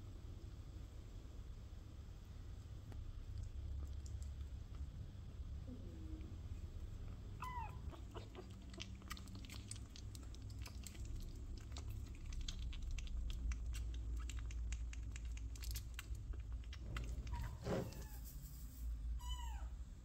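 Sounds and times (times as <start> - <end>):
kitten suckling from a bottle: 3.1 - 5.5, 6.9 - 18.2
kitten mewing: 7.2 - 9.3.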